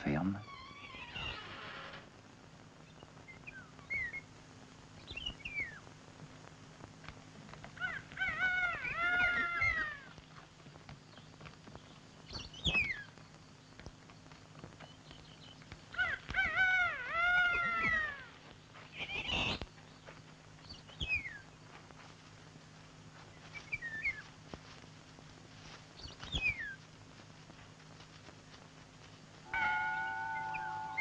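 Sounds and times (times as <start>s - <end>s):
animal wavering calls: 7.8s - 10.2s, 15.9s - 19.6s, 29.5s - 31.0s
short falling high calls: 29.4s - 31.0s.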